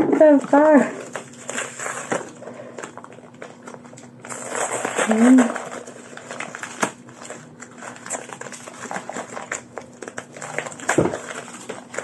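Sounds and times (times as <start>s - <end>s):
paper rustling and crackling: 0.1s - 12.0s.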